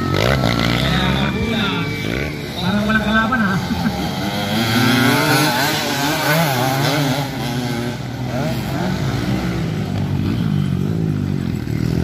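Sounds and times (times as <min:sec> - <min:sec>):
motorcycle engines revving: 0:00.0 - 0:12.0.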